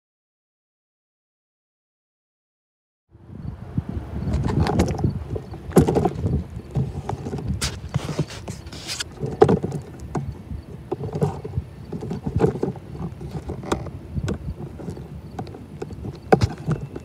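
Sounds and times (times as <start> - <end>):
wind buffeting microphone: 3.1 - 17.0
footsteps on gravel: 5.6 - 9.5.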